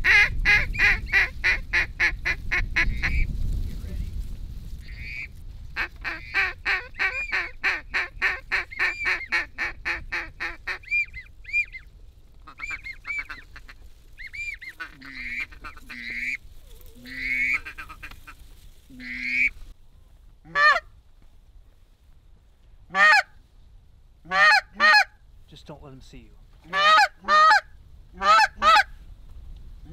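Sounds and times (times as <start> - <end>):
duck call whistles and quacks: 0.0 - 3.2, 4.8 - 11.8, 12.4 - 16.4, 17.0 - 18.4, 19.0 - 19.6, 20.5 - 20.9, 22.9 - 23.4, 24.3 - 25.1, 26.7 - 28.9.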